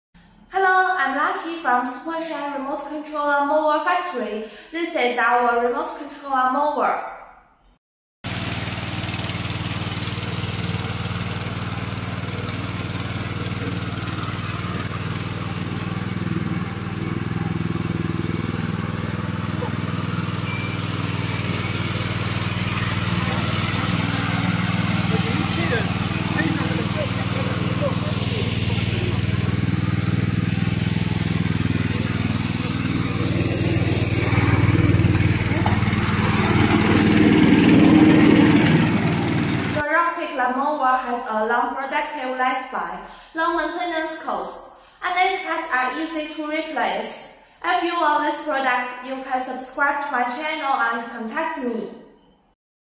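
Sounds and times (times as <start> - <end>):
mower engine running: 8.2 - 39.8
cutting through dry grass: 8.3 - 39.8.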